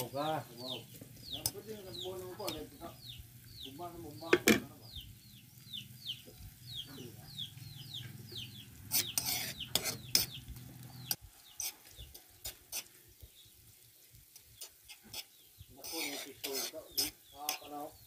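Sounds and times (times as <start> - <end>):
chick peeping: 0.0 - 12.5
metal spoon scraping a metal pan: 0.9 - 2.6, 8.8 - 10.4, 11.0 - 13.0, 14.4 - 17.8.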